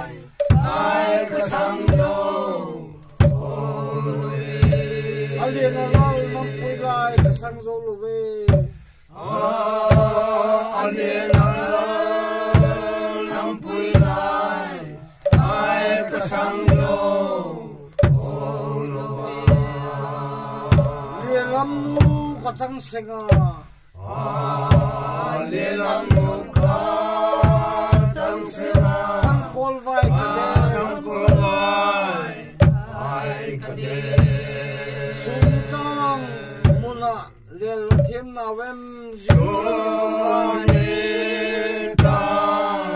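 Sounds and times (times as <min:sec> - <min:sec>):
group chanting in unison: 0:00.0 - 0:07.4, 0:08.6 - 0:22.5, 0:24.0 - 0:37.0, 0:39.2 - 0:42.9
hand drum strikes: 0:00.3 - 0:02.3, 0:03.1 - 0:03.5, 0:04.6 - 0:05.0, 0:05.8 - 0:06.4, 0:07.2 - 0:07.6, 0:08.5 - 0:08.9, 0:09.9 - 0:11.9, 0:12.5 - 0:13.2, 0:13.8 - 0:14.4, 0:15.2 - 0:17.0, 0:17.9 - 0:18.4, 0:19.4 - 0:19.9, 0:20.7 - 0:21.2, 0:22.0 - 0:22.4, 0:23.2 - 0:23.6, 0:24.7 - 0:25.0, 0:26.0 - 0:31.6, 0:32.5 - 0:33.0, 0:34.1 - 0:34.5, 0:35.4 - 0:35.8, 0:36.6 - 0:37.0, 0:37.9 - 0:38.2, 0:39.3 - 0:39.6, 0:41.9 - 0:42.4.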